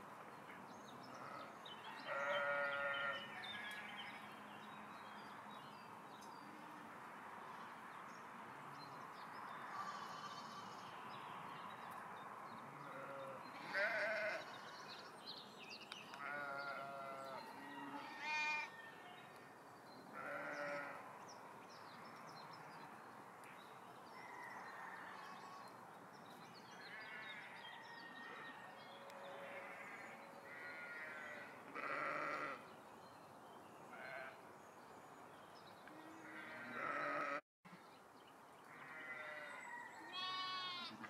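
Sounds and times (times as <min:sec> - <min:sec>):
sheep bleating: 0:02.1 - 0:03.3, 0:12.8 - 0:14.7, 0:16.2 - 0:18.7, 0:20.2 - 0:21.0, 0:29.4 - 0:32.6, 0:36.1 - 0:37.4, 0:38.8 - 0:41.0.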